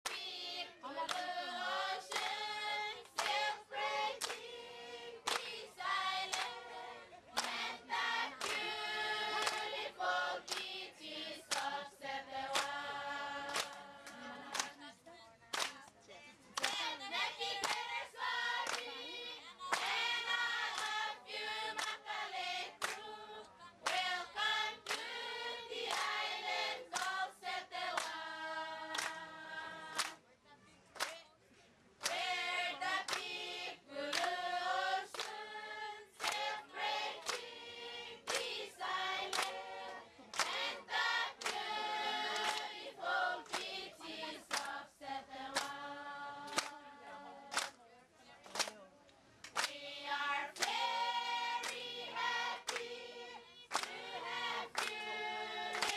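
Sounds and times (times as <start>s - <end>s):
hand claps: 0.0s - 0.3s, 1.0s - 1.3s, 2.1s - 3.6s, 4.2s - 4.5s, 5.2s - 6.6s, 7.3s - 7.7s, 8.4s - 9.8s, 10.4s - 10.7s, 11.5s - 11.8s, 12.5s - 12.8s, 13.4s - 14.9s, 15.5s - 16.0s, 16.6s - 18.0s, 18.6s - 19.0s, 19.7s - 22.0s, 22.8s - 23.1s, 23.8s - 25.1s, 25.8s - 26.2s, 26.9s - 27.2s, 27.9s - 28.2s, 28.9s - 29.2s, 29.9s - 30.2s, 31.0s - 31.2s, 32.0s - 32.4s, 33.0s - 33.4s, 34.1s - 34.4s, 35.1s - 35.4s, 36.2s - 36.6s, 37.2s - 37.5s, 38.3s - 38.6s, 39.2s - 39.6s, 40.3s - 42.8s, 43.4s - 43.7s, 44.5s - 44.8s, 45.5s - 45.8s, 46.5s - 46.8s, 47.5s - 47.8s, 48.4s - 48.8s, 49.4s - 49.8s, 50.6s - 53.0s, 53.7s - 55.9s
crowd singing: 0.0s - 15.0s, 15.7s - 30.2s, 32.0s - 47.8s, 49.6s - 55.9s.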